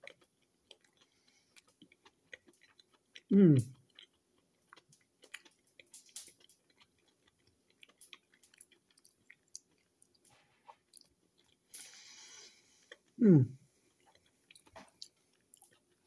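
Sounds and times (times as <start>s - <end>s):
person chewing food: 0.0s - 16.0s.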